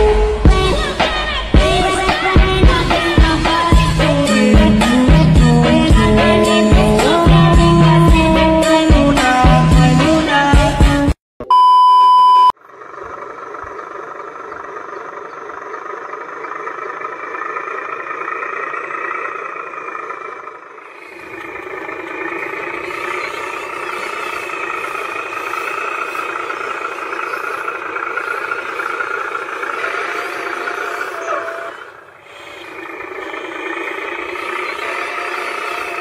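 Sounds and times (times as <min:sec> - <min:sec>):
model truck engine-like hum: 0:00.0 - 0:11.2, 0:12.5 - 0:36.0
loud beep: 0:11.4 - 0:12.6.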